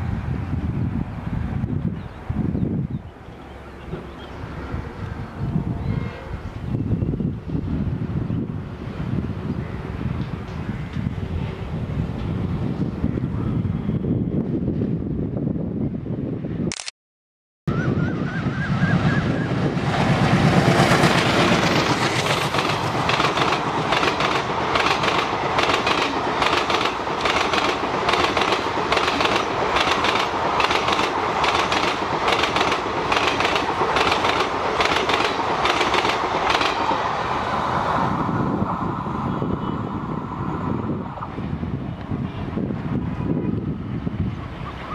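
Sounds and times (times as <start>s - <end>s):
train wheels clattering over rail joints: 20.6s - 37.0s.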